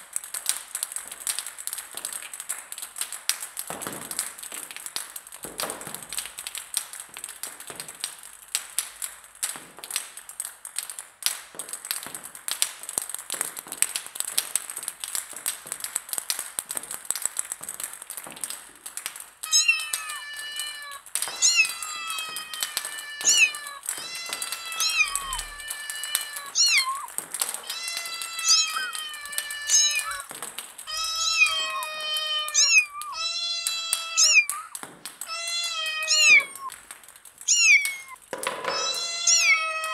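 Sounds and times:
cat meowing: 19.4 - 36.7, 37.5 - 39.9
table tennis balls bouncing: 19.4 - 39.9.

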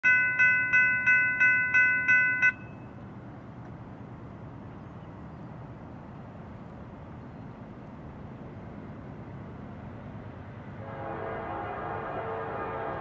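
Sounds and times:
railroad crossing bell ringing: 0.0 - 3.0.

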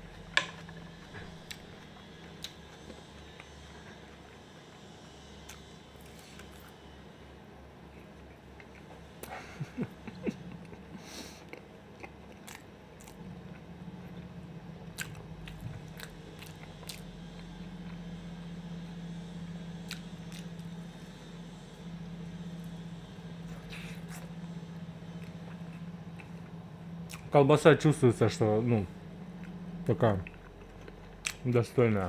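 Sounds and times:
low steady hum: 0.0 - 32.0
close chewing: 11.4 - 18.0, 19.8 - 20.7, 29.4 - 31.5.

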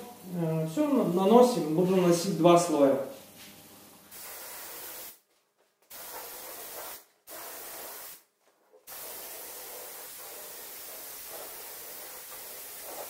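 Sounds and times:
spray gun hissing: 4.1 - 5.2, 5.9 - 8.2, 8.9 - 13.0.

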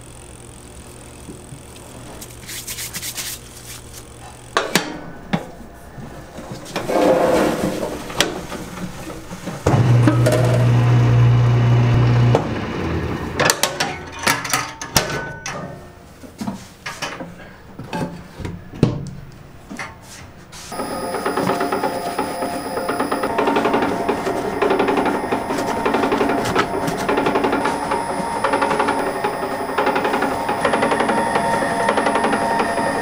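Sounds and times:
dough scraping in a mixer: 20.7 - 33.0
motor humming: 20.7 - 33.0.

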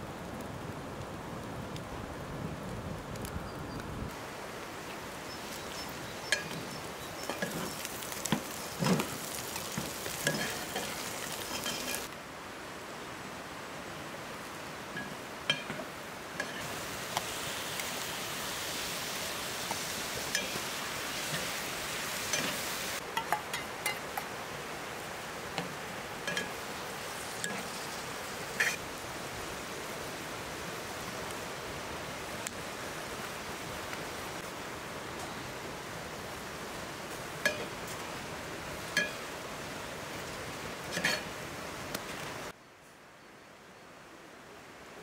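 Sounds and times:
stew sizzling: 4.1 - 12.2, 14.5 - 42.5
metal spoon scraping a pot: 11.5 - 12.1.

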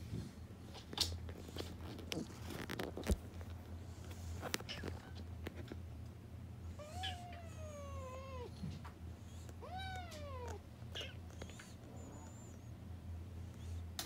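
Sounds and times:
cat meowing: 6.8 - 8.5, 9.6 - 11.2.

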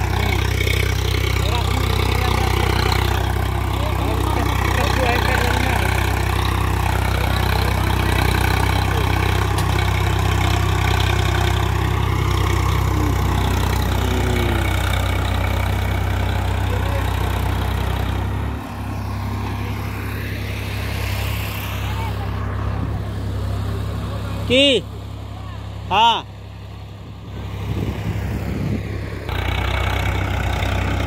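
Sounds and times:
rotary tiller in dry soil: 0.0 - 19.0, 29.3 - 31.0
tractor diesel engine running: 0.0 - 31.0.

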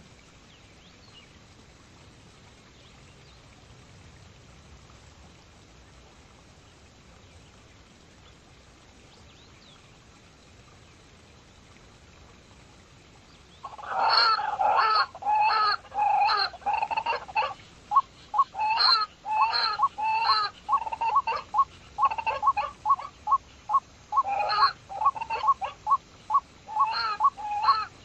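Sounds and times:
pheasant calling: 13.6 - 28.0.

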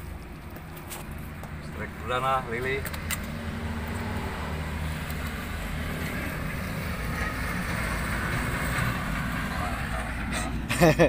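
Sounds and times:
faint outdoor background noise: 0.0 - 11.0.

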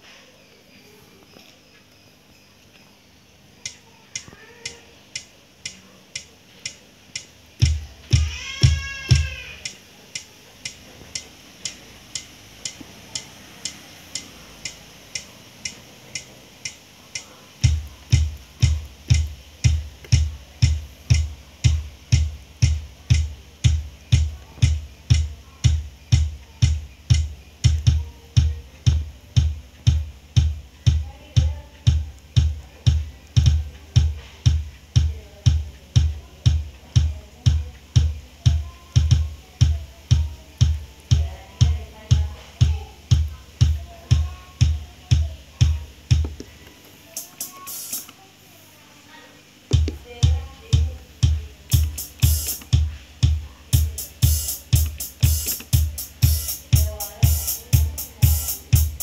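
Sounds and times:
drum machine pattern: 3.6 - 48.2, 49.6 - 59.0
steady ticking: 3.6 - 48.2, 49.6 - 59.0
bass drum: 7.6 - 9.5, 17.6 - 46.6, 49.7 - 59.0.

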